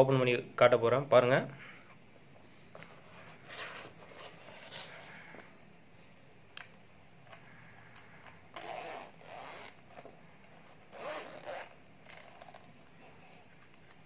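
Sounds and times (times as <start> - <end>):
zipper pulled open: 8.5 - 10.0, 10.7 - 12.8.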